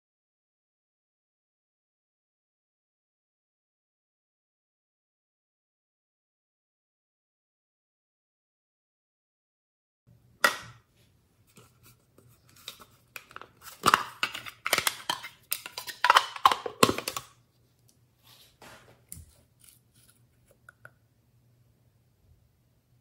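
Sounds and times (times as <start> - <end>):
plastic cap clicking: 12.6 - 17.3.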